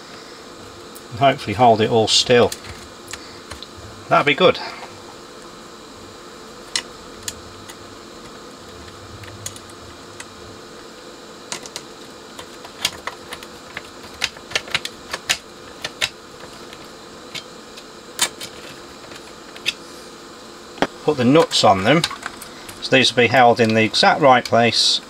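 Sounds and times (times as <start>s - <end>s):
screwdriver clicking on metal panel: 11.5s - 19.8s.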